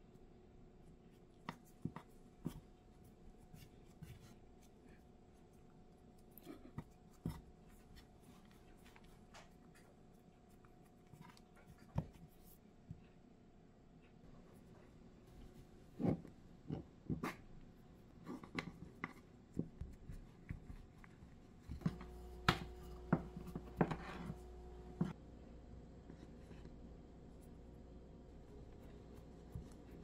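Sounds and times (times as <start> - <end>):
low hum: 21.9 - 30.0.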